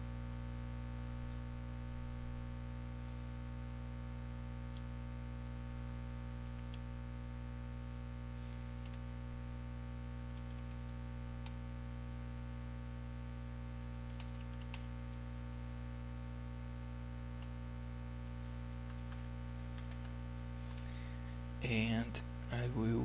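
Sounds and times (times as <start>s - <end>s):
electrical hum: 0.0s - 23.0s
computer keyboard keystrokes: 8.8s - 9.0s, 14.1s - 14.9s, 18.8s - 20.2s.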